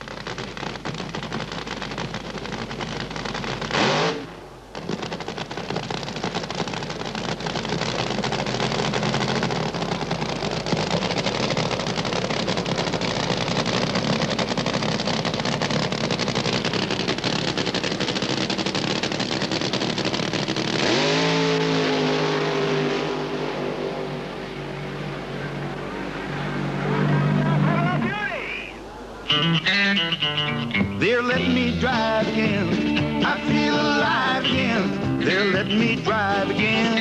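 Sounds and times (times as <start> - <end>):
drag racing car engine revving: 0.6 - 4.4, 5.9 - 28.1.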